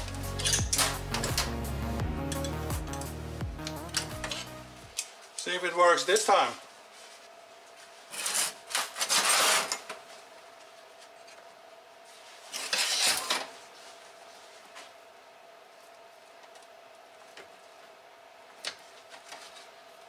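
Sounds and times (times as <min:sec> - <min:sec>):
metal parts scraping and rubbing: 0:00.2 - 0:01.5, 0:02.3 - 0:04.6, 0:08.0 - 0:09.9, 0:12.4 - 0:13.5.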